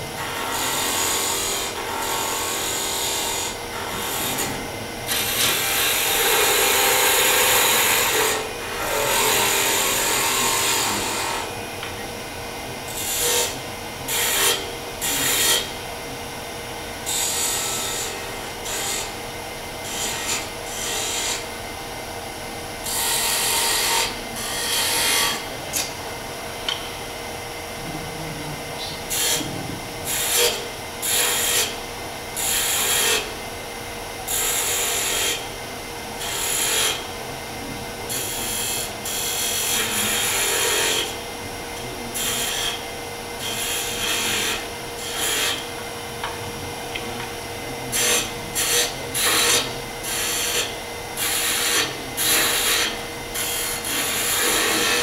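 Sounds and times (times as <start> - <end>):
wood lathe humming: 0.0 - 55.0
turning tool scraping wood: 47.9 - 55.0.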